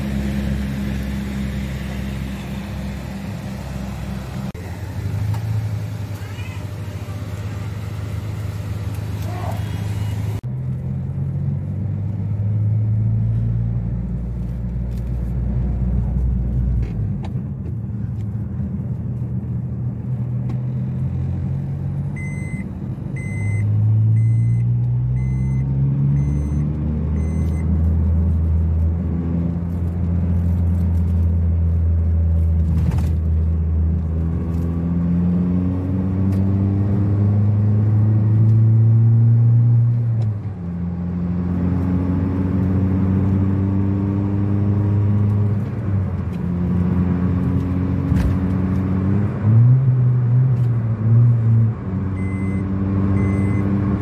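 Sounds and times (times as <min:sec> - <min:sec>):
car engine accelerating: 0:00.0 - 0:54.0
short electronic beeps: 0:22.2 - 0:27.7, 0:52.2 - 0:53.8.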